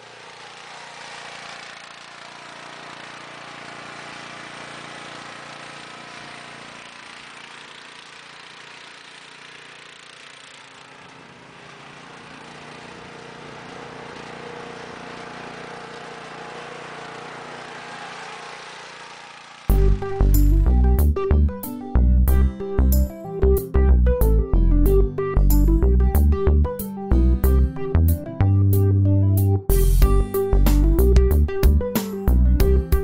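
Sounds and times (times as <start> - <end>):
mower engine running: 0.0 - 23.7, 29.7 - 33.0
loud music: 28.8 - 33.0.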